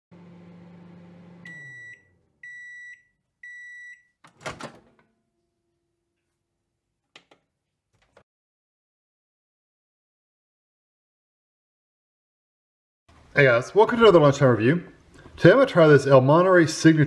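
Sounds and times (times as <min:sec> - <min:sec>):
microwave oven humming: 0:00.1 - 0:02.7
microwave door opening clunk: 0:04.3 - 0:05.0.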